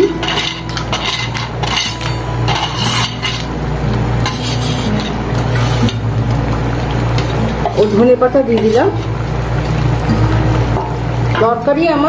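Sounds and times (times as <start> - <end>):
spoon scraping steel plate: 0.1 - 3.5, 4.2 - 6.0.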